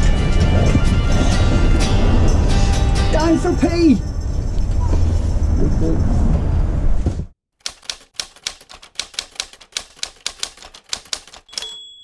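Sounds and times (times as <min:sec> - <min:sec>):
moving vehicle: 0:00.0 - 0:07.4
typewriter keys clacking: 0:07.6 - 0:12.0
typewriter bell ding: 0:10.5 - 0:12.0.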